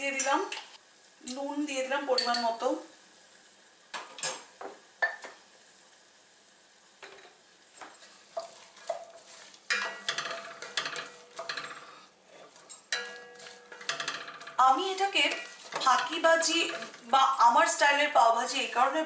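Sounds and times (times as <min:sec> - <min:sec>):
oil sizzling: 0:00.0 - 0:19.0
spatula stirring vegetables in pot: 0:06.8 - 0:19.0
spatula knocking against pot: 0:12.9 - 0:14.6.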